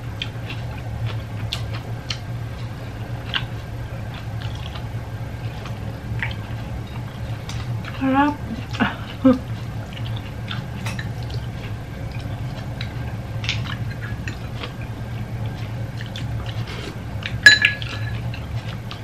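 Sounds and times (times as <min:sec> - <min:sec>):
steady low hum: 0:00.0 - 0:19.0
chewing: 0:00.2 - 0:19.0
ringing clink of utensil: 0:17.4 - 0:18.2.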